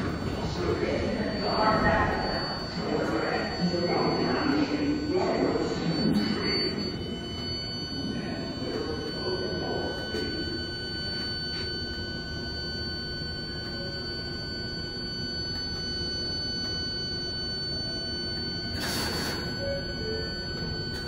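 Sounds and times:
subway car rumble: 0.0 - 11.6, 17.8 - 21.0
high propulsion whine: 0.0 - 21.0.

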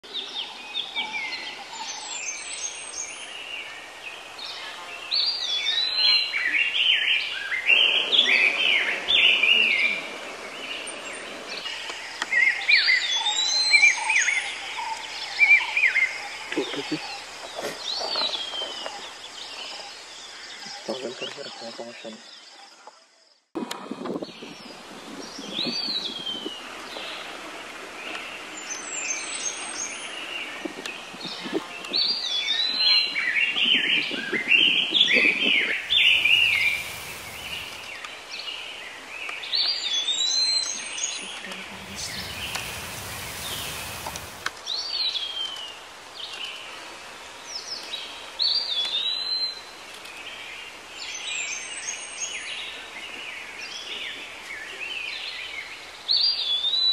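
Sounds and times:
birds chirping: 0.0 - 23.5, 28.0 - 46.7
steady background hiss: 23.7 - 56.9
whistled calls swooping down: 35.8 - 38.0, 41.8 - 44.5
rushing noise: 35.8 - 38.1, 41.6 - 44.6.

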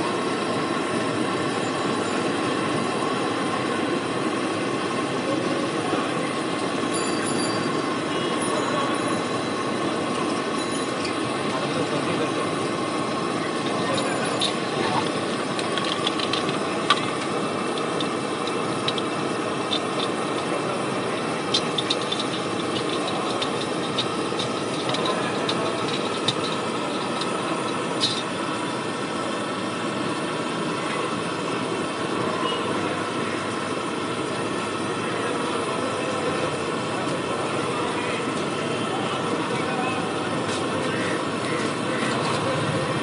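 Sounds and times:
oil bubbling while deep-frying: 12.6 - 30.3
oil spattering clicks: 12.7 - 28.6.

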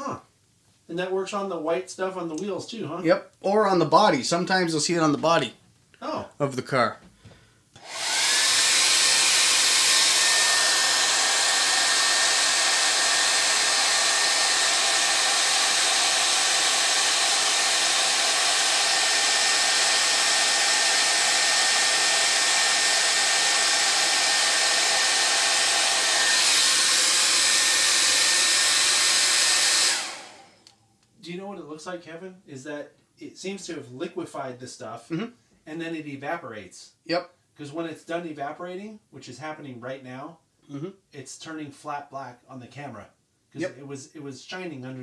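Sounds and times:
hair dryer running: 7.8 - 30.8.

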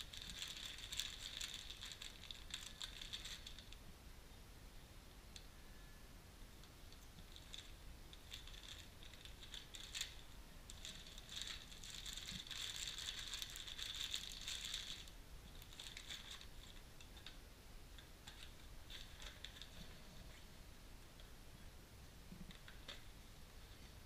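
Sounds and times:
plastic bag crinkling: 0.0 - 3.8, 7.1 - 17.3, 18.2 - 20.3.

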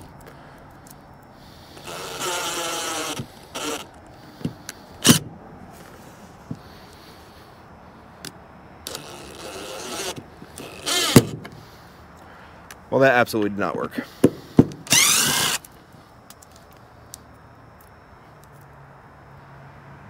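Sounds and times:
cordless drill whirring: 1.7 - 5.2, 8.9 - 11.5, 14.8 - 15.7.

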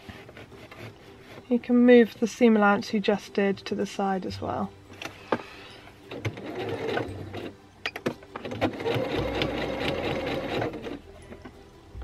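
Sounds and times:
sewing machine stitching: 6.1 - 7.5, 8.4 - 11.0.

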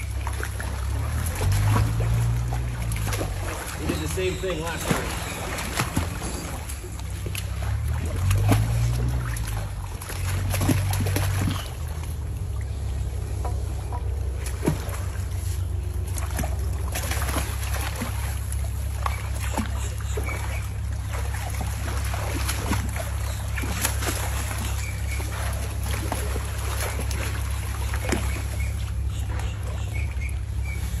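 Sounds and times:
alligators splashing in water: 0.0 - 31.0
low rumble: 20.4 - 31.0.

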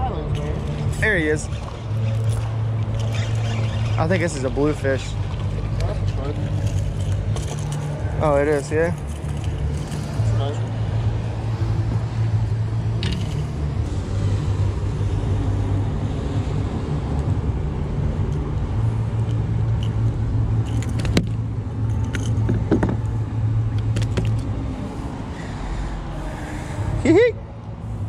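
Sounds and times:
low motor rumble: 0.0 - 28.0
sharp clicks and rattles: 13.0 - 13.5, 19.2 - 23.1.

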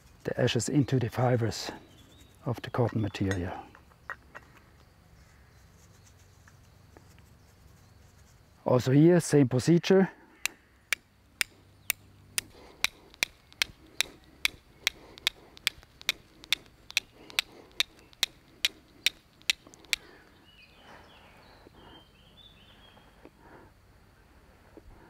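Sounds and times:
steel striker clicking on flint: 10.4 - 20.1.

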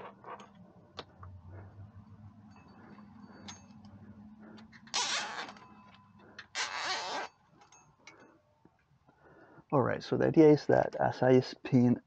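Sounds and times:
zip tie ratcheting: 4.8 - 5.6, 6.4 - 7.3.

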